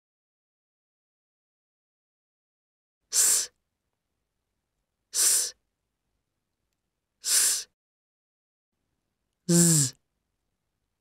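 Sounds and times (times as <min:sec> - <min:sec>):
person making hissing s sound: 0:03.1 - 0:03.6, 0:05.2 - 0:05.6, 0:07.2 - 0:07.8, 0:09.5 - 0:10.0.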